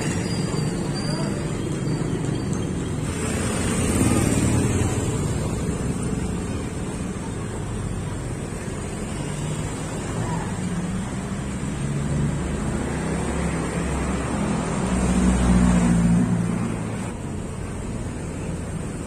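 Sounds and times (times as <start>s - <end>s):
vehicle engine passing by: 3.0s - 6.4s, 9.6s - 17.2s.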